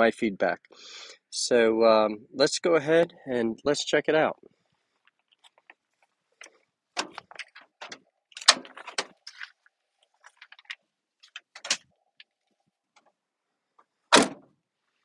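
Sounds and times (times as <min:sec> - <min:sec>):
truck door clicks and knocks: 0:14.1 - 0:14.5.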